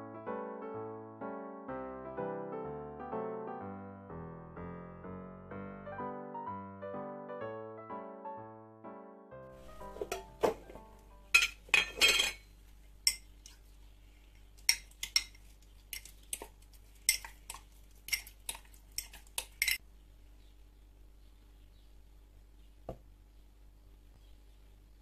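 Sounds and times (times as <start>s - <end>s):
metal spoon clinking on glass jar: 11.3s - 12.4s, 19.0s - 19.8s.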